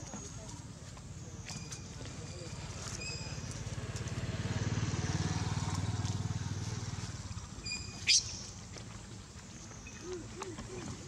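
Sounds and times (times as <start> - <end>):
vehicle engine passing: 2.5 - 8.2.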